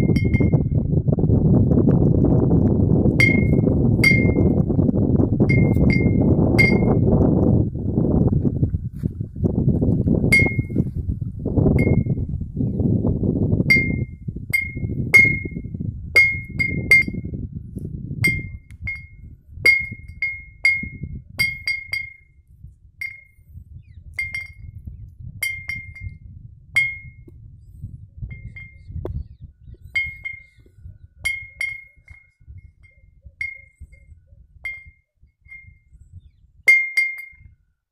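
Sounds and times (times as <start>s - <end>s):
glass bottle clinking: 0.0s - 0.7s, 3.2s - 4.6s, 5.5s - 7.0s, 10.4s - 10.8s, 16.2s - 17.2s, 18.3s - 22.3s, 24.2s - 24.7s, 25.4s - 26.2s, 30.0s - 30.6s, 31.3s - 32.4s, 34.7s - 35.7s, 36.7s - 37.5s
wind rumble on microphone: 0.0s - 37.9s.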